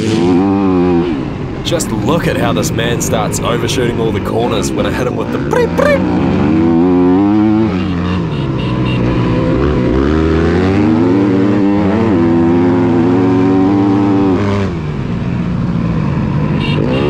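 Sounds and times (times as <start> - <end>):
dirt bike engine revving: 5.4 - 14.9, 16.5 - 17.0.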